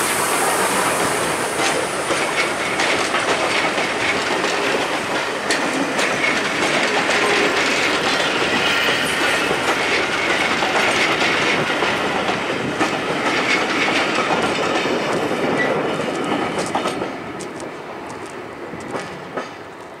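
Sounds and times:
rumble of receding train: 0:00.0 - 0:20.0
train wheels clicking over rail joints: 0:00.0 - 0:20.0.

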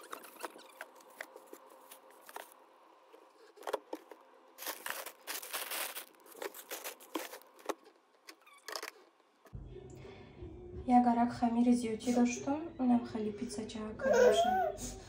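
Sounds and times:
plastic bags crinkling: 0:03.4 - 0:09.1.

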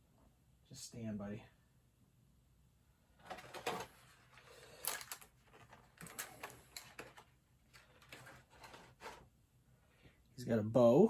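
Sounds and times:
plastic toy clicks and rustles: 0:03.2 - 0:08.9.

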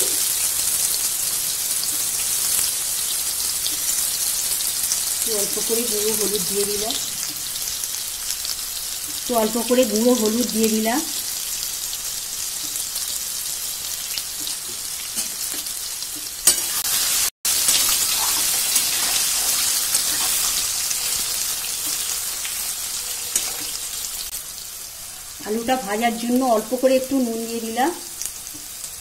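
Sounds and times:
potatoes sizzling in hot oil: 0:00.0 - 0:29.0
metal spatula turning food: 0:14.2 - 0:24.2.

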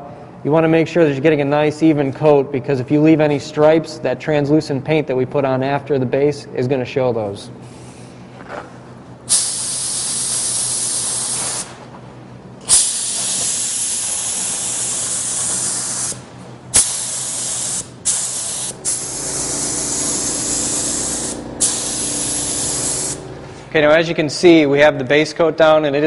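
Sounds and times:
spray gun hissing: 0:09.3 - 0:11.8, 0:12.7 - 0:23.3.

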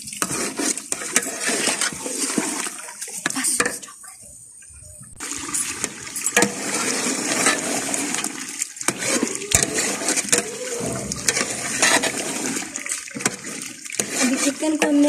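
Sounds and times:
ladle scraping and knocking pot: 0:00.0 - 0:02.8, 0:05.8 - 0:15.0
chicken sizzling in a pot: 0:05.2 - 0:15.0.

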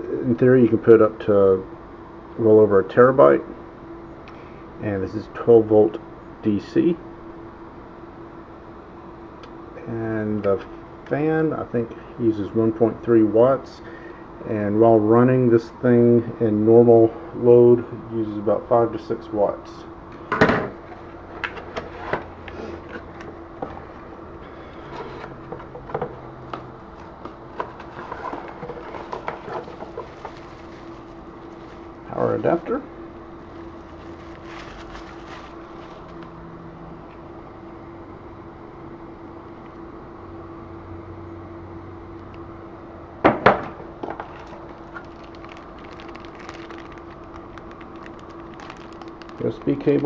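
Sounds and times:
faint steady hum: 0:00.0 - 0:50.0
bubble wrap crinkling: 0:27.6 - 0:32.8, 0:33.4 - 0:36.3, 0:44.2 - 0:50.0.

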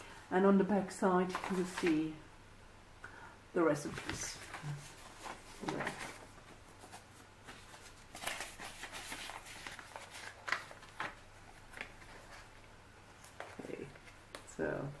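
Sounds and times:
paper rustling and scraping: 0:01.3 - 0:02.0, 0:03.8 - 0:14.5.

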